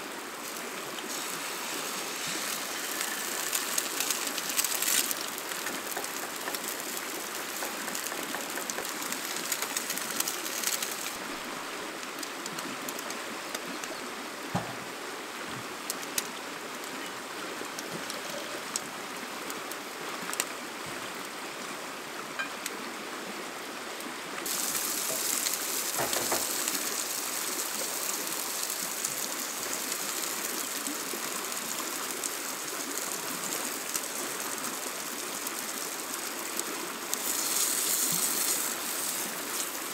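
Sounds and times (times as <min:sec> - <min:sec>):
rushing water: 0:00.0 - 0:39.9.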